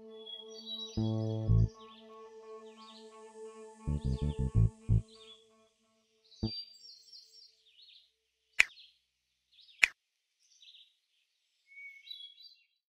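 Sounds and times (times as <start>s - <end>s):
small birds chirping: 6.2s - 12.8s.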